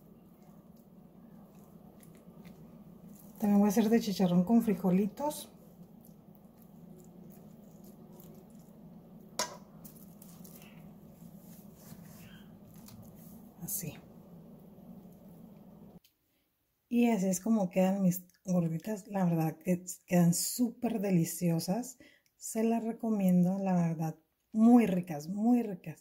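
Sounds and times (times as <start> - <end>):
low steady hum: 0.0 - 16.0.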